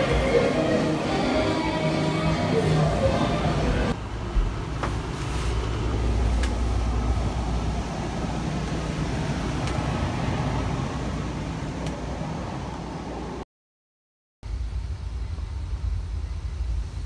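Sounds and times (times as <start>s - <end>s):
ventilation low rumble: 14.5s - 17.0s.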